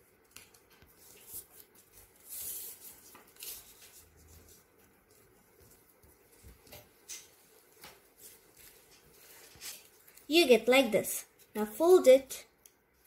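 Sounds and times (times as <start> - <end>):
paper folding rustles: 0.0 - 10.3.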